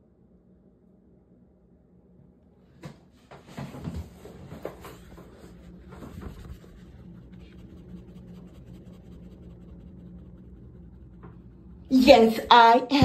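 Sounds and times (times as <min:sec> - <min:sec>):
low hum: 0:00.0 - 0:13.0
rustling and scraping on microphone: 0:03.2 - 0:12.5.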